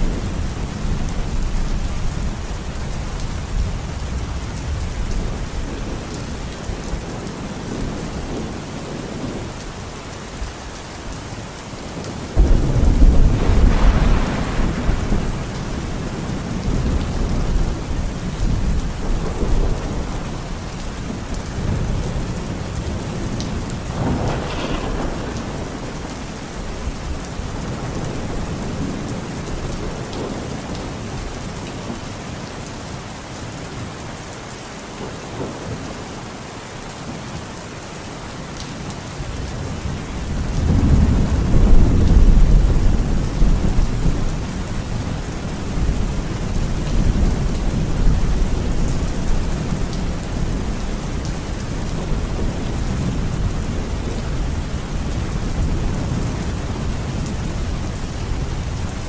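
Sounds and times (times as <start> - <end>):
heavy rain pouring: 0.0 - 59.0
thunder rumbling: 12.0 - 31.0, 39.7 - 59.0.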